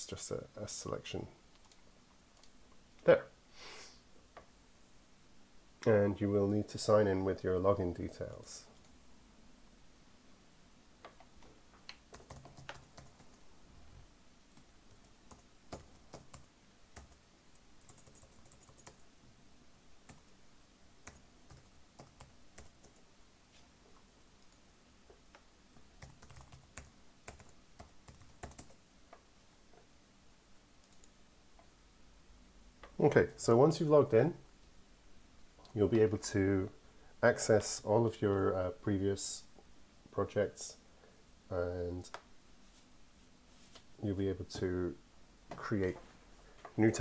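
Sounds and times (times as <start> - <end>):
typing on computer keyboard: 12.1 - 13.4, 14.9 - 17.2, 17.8 - 19.0, 26.0 - 28.8.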